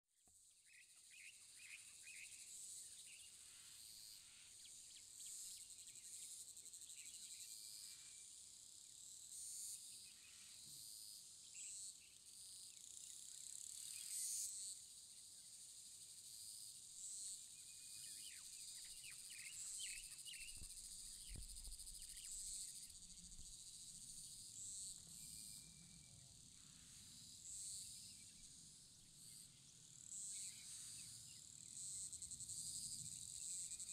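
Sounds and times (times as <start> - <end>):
cicadas buzzing: 18.1 - 33.9.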